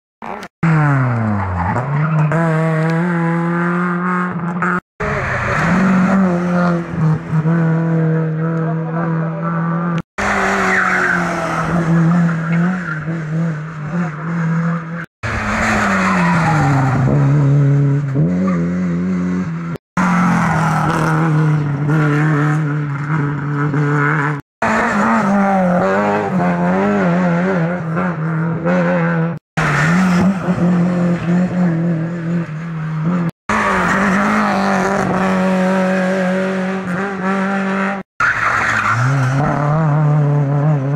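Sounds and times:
rally car engines revving: 0.2 - 40.9.

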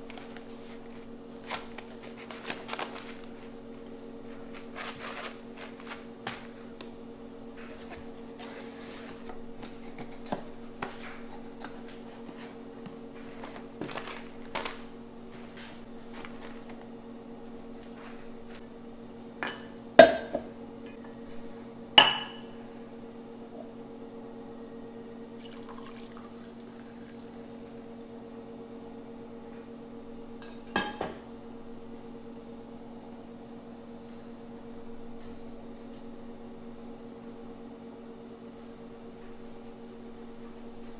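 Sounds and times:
paper bags rustling: 0.0 - 3.6, 4.3 - 6.8, 10.9 - 16.8.

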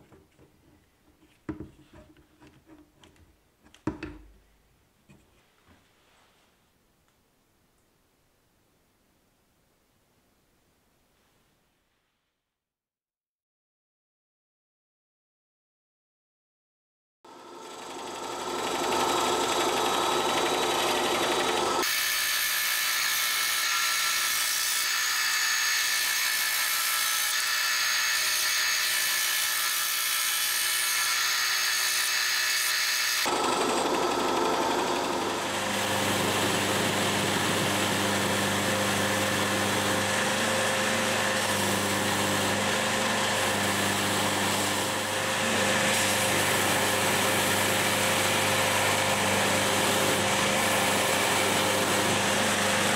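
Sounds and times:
motor with low hum: 17.3 - 21.8.

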